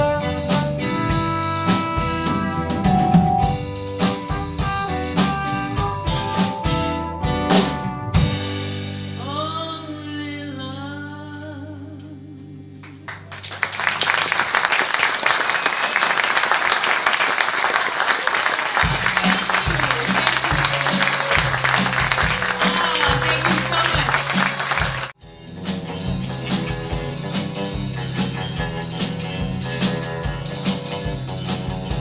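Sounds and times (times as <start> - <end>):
live band playing: 0.0 - 11.0, 13.3 - 32.0
audience applause: 13.1 - 25.2.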